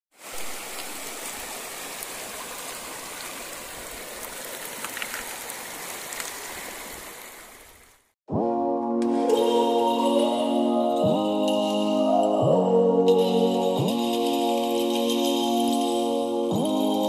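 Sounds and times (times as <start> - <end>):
river babbling over stones: 0.2 - 8.1.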